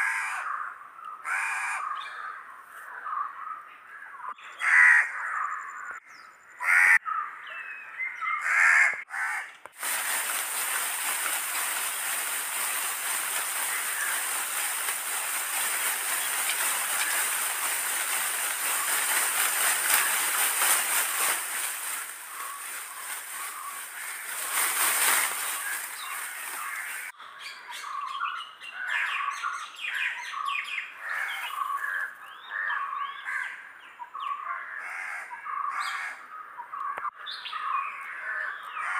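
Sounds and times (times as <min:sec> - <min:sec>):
dense chorus of birds: 0:00.0 - 0:09.0, 0:09.8 - 0:38.9
loud harsh bird calls: 0:00.0 - 0:38.9
quick bird chirps: 0:09.9 - 0:27.1.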